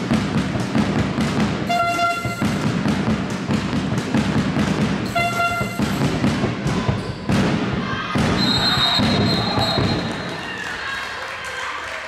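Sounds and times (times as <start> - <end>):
handball bouncing: 0.0 - 10.3
short horn blast: 1.7 - 2.6, 5.1 - 6.0
crowd noise: 4.5 - 12.0
long high whistle: 8.4 - 10.2.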